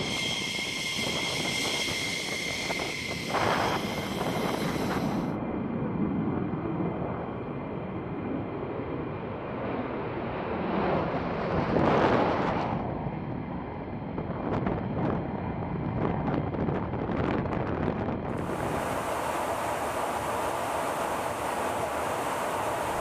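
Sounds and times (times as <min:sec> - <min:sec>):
jet taking off: 0:00.0 - 0:05.6, 0:08.6 - 0:15.3, 0:18.2 - 0:23.0.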